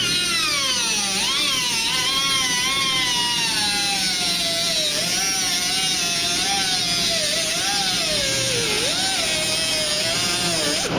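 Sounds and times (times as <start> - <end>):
cutoff wheel whining through metal: 0.0 - 10.9.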